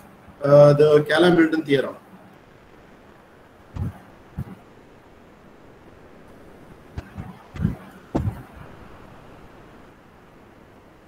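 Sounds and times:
faint room hiss: 0.0 - 11.0
short low thumps: 3.8 - 4.7, 7.0 - 8.8.

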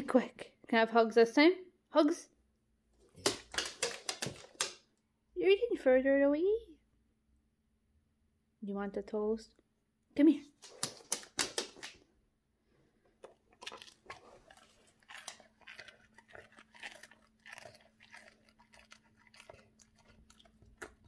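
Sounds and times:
dog crunching toast: 3.0 - 4.8, 10.6 - 12.0, 13.2 - 21.0.

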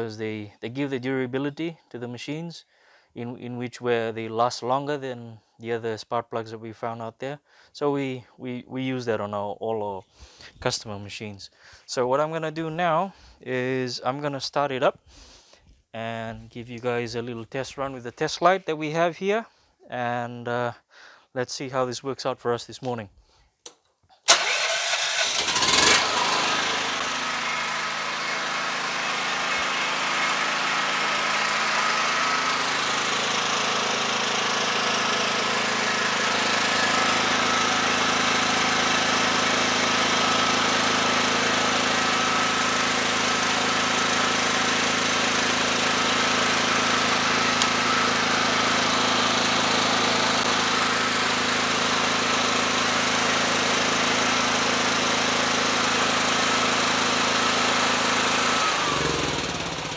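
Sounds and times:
petrol generator engine running: 24.3 - 59.9.

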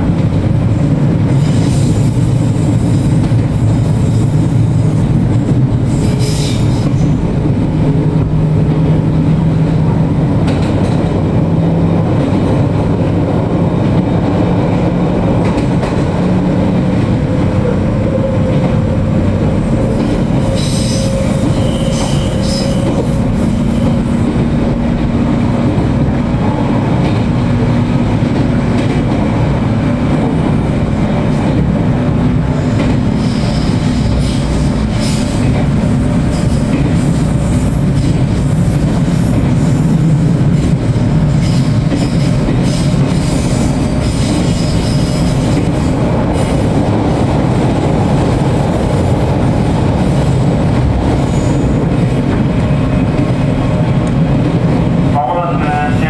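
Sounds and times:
train wheels rumbling on rail: 0.0 - 56.0
high-pitched wheel squeals: 19.8 - 24.2.

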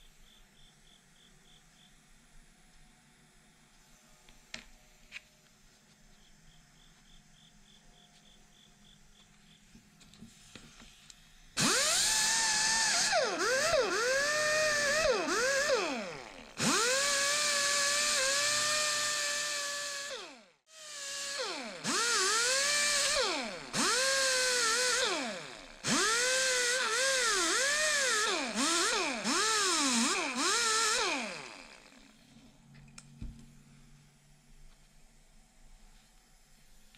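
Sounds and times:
die grinder whining: 11.6 - 32.2.

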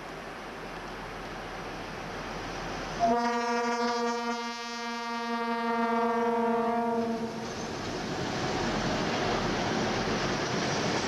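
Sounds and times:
freight train rumbling: 0.0 - 11.0
locomotive air horn blast: 3.0 - 7.4.

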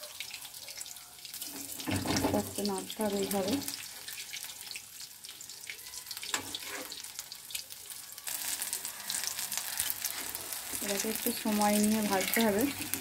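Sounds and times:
pakoras sizzling in oil: 0.0 - 13.0
spatula scraping: 6.3 - 7.0, 12.0 - 13.0.

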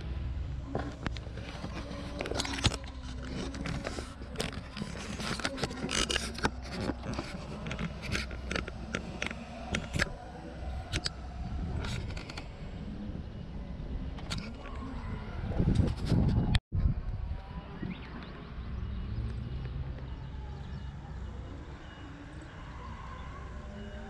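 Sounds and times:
camera scraping against plastic panels: 0.8 - 12.5.

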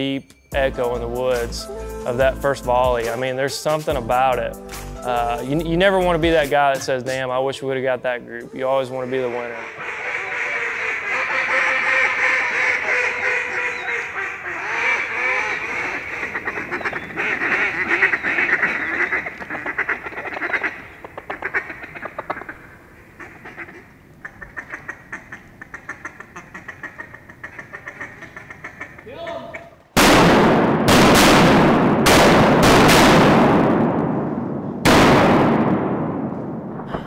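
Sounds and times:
ducks quacking and chattering: 8.5 - 29.8.

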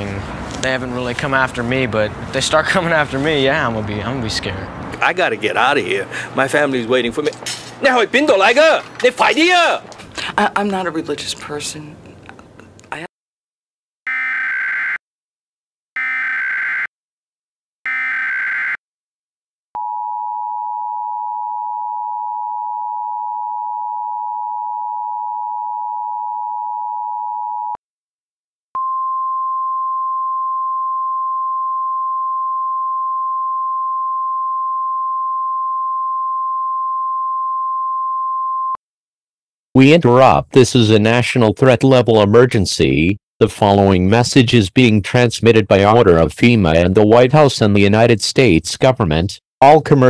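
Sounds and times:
steady single tone: 28.8 - 38.8.

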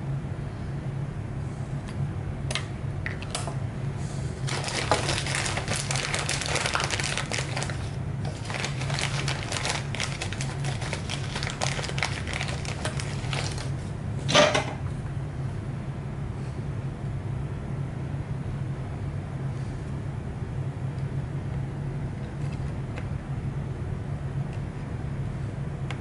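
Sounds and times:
steady low hum: 0.0 - 26.0
small crackles and clicks: 4.5 - 13.7.

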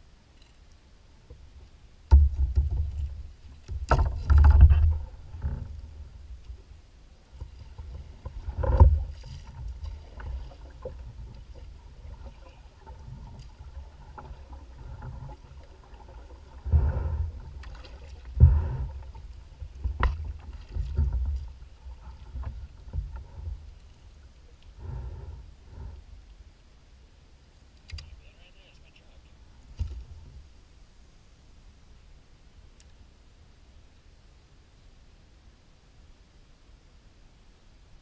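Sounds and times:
water lapping at hull: 1.2 - 26.6
wind rumble on microphone: 1.3 - 23.8.

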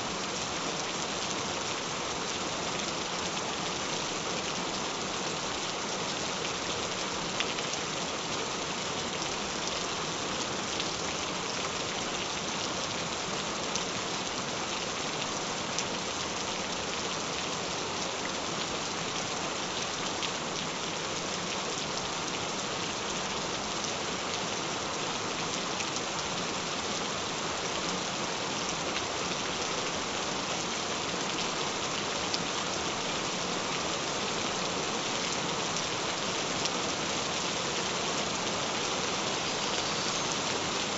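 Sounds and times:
gentle rain hissing: 0.0 - 40.9.

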